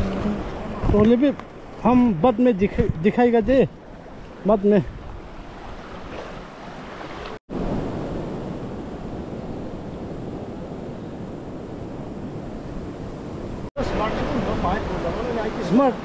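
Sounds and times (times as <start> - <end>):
river water flowing: 0.0 - 9.1, 13.8 - 16.0.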